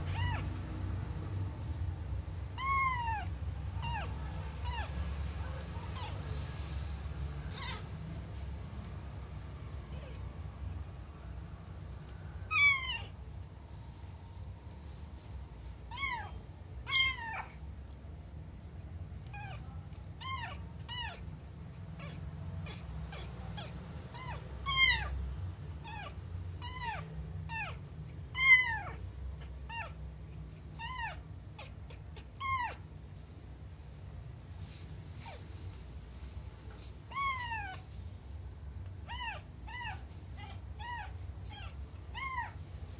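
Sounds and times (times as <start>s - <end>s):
kitten meowing: 0.0s - 0.6s, 2.5s - 5.0s, 7.5s - 7.9s, 12.4s - 13.2s, 15.9s - 17.6s, 19.2s - 21.3s, 22.0s - 25.2s, 25.8s - 30.0s, 30.8s - 32.8s, 37.1s - 37.9s, 39.0s - 42.6s.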